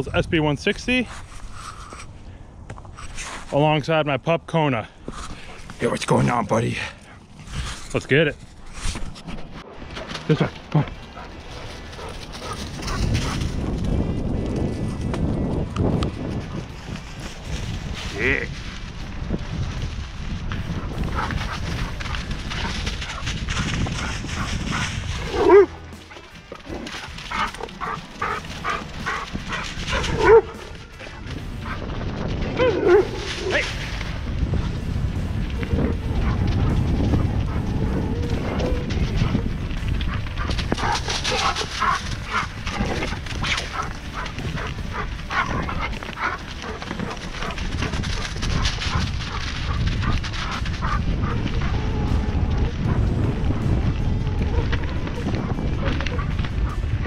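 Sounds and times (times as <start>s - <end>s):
wind: 0.0s - 57.0s
bike tyres rumbling: 4.8s - 57.0s
dog barking and yipping: 22.6s - 30.9s, 32.5s - 33.6s, 38.3s - 51.8s
dog barking: 27.3s - 30.8s, 40.1s - 42.6s.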